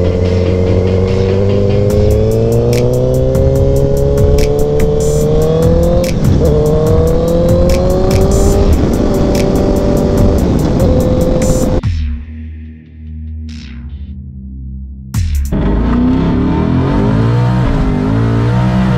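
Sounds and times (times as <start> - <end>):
motorcycle engine accelerating: 0.0 - 11.8, 15.4 - 18.9
electronic music with quick beat: 0.0 - 14.2, 15.2 - 15.6.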